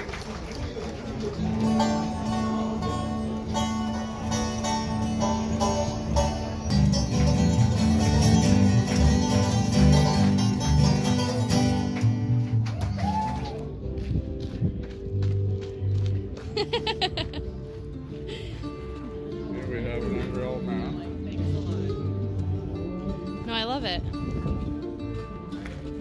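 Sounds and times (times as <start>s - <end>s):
strummed acoustic guitar: 1.4s - 12.6s
upright bass: 1.4s - 26.0s.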